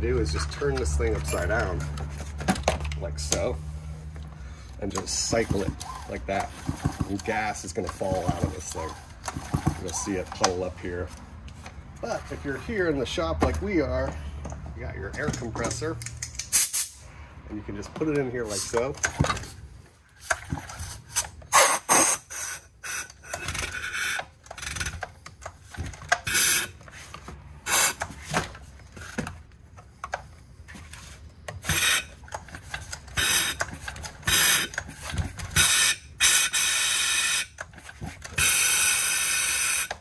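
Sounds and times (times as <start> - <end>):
compressed air blasts: 16.4 - 17.0, 21.1 - 24.2, 26.2 - 26.8, 27.6 - 28.3, 33.1 - 37.6.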